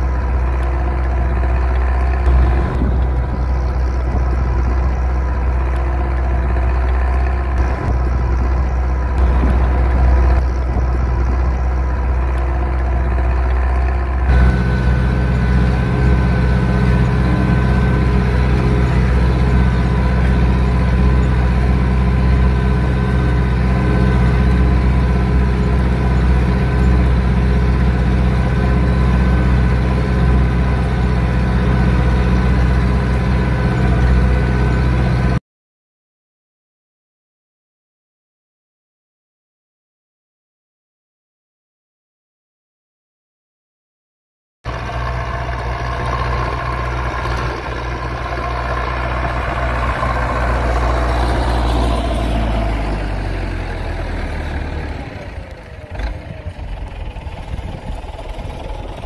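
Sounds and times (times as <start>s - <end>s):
thin steady whine: 0.0s - 35.1s
tractor diesel engine running: 0.0s - 35.4s, 44.7s - 59.0s.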